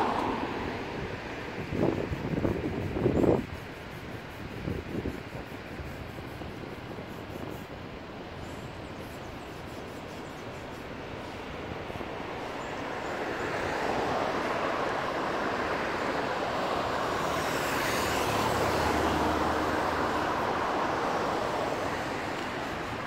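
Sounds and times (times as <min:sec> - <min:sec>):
road traffic passing: 0:00.0 - 0:04.8, 0:10.7 - 0:23.0
vehicle engine hum: 0:13.9 - 0:23.0.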